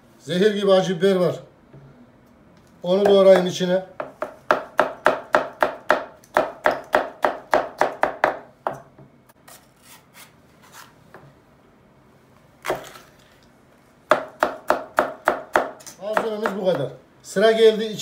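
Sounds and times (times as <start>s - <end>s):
knife chopping on cutting board: 3.0s - 8.8s, 14.1s - 17.0s.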